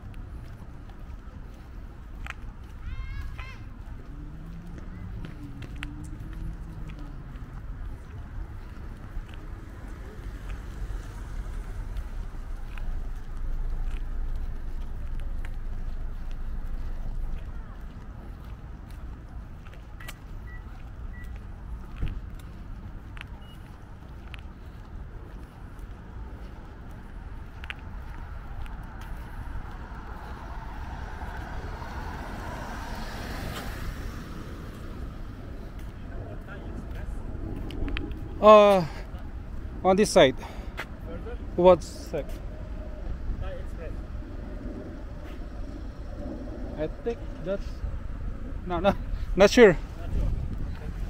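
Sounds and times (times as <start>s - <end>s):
steady low rumble: 0.0s - 51.0s
car driving past: 27.6s - 39.6s
low rumble: 33.5s - 39.8s, 42.4s - 51.0s.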